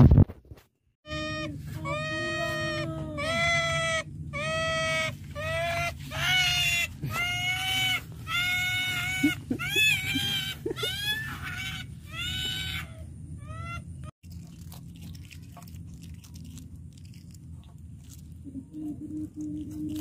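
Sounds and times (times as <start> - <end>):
otter squealing calls: 1.1 - 14.1.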